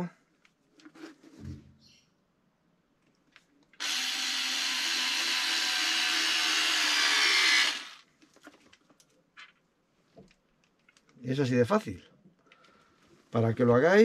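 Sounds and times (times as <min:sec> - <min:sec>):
cordless screwdriver running: 0:03.8 - 0:08.0.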